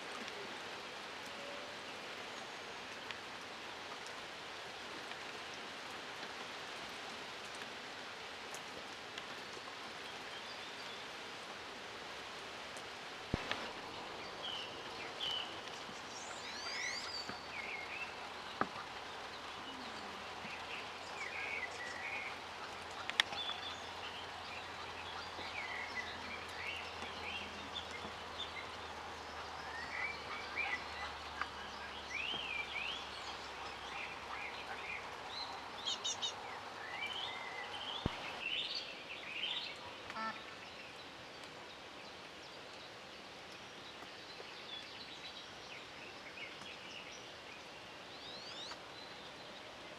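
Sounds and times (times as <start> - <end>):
steady background hiss: 0.0 - 49.9
small birds chirping: 12.8 - 49.9.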